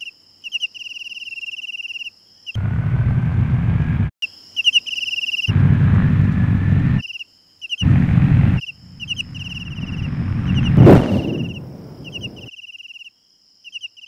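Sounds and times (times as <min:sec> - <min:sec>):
crickets chirping: 0:00.0 - 0:02.6, 0:04.2 - 0:05.7, 0:07.0 - 0:14.0
loud rushing rumble: 0:02.6 - 0:04.1, 0:05.5 - 0:07.0, 0:07.8 - 0:12.5
low rumble: 0:02.6 - 0:04.1, 0:05.5 - 0:07.0, 0:07.8 - 0:12.5.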